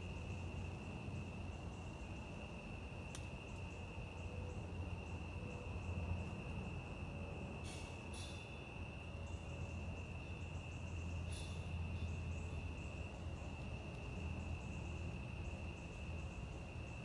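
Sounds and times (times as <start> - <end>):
crickets trilling: 0.0 - 17.0
low steady rumble: 0.0 - 17.0
insect chirping in quick pulses: 7.3 - 17.0.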